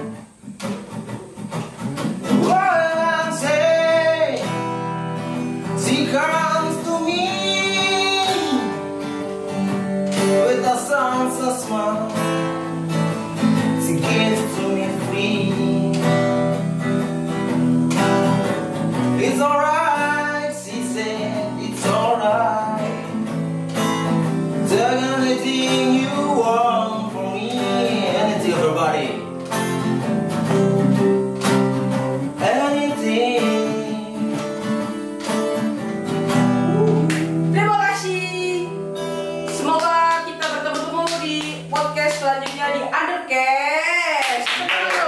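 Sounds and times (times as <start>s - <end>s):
strummed acoustic guitar: 0.0s - 43.2s
man singing: 2.3s - 9.2s, 10.1s - 17.0s, 18.9s - 23.5s, 24.2s - 29.4s, 32.1s - 35.3s, 36.3s - 42.9s.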